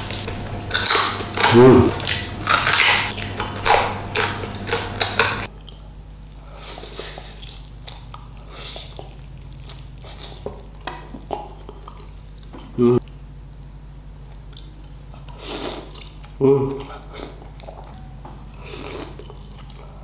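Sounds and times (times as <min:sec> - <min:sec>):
crunchy food chewing: 0:00.0 - 0:13.3, 0:14.2 - 0:20.0.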